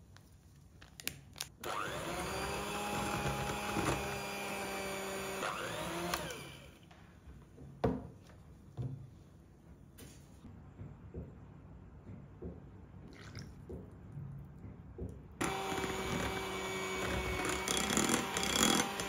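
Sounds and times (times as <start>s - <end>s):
electric mixer motor running: 1.6s - 6.8s, 15.4s - 19.0s.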